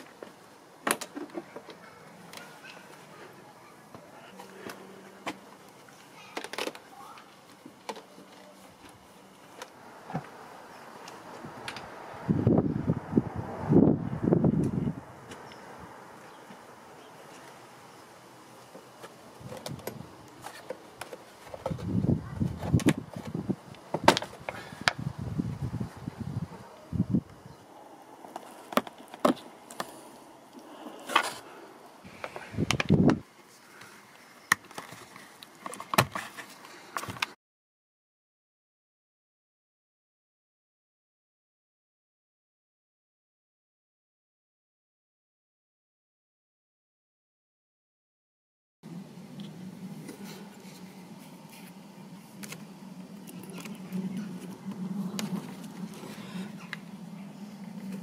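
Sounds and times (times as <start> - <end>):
handling clicks and rustles: 18.6 - 25.0, 28.2 - 31.5, 32.1 - 37.4, 49.4 - 58.0.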